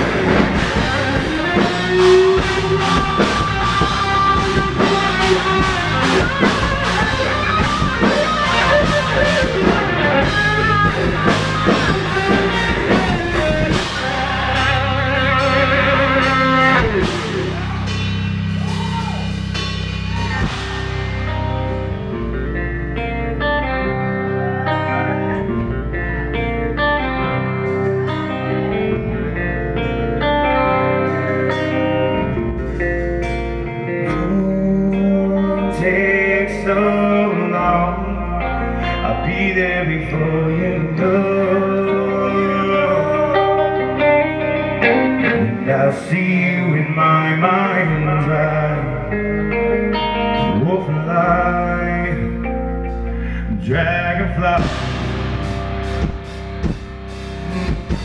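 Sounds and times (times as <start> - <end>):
man singing: 0.0 - 17.8, 33.8 - 55.4
bass: 0.0 - 58.0
drums: 0.0 - 58.0
guitars: 0.0 - 58.0.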